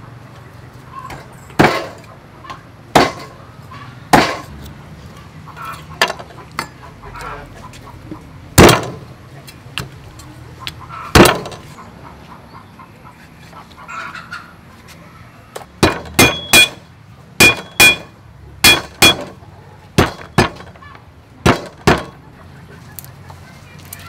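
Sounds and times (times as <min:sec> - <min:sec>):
cleaver chopping on wooden block: 0:11.2 - 0:11.6, 0:20.0 - 0:20.7, 0:21.5 - 0:22.1
metallic ring of blade: 0:16.2 - 0:16.8.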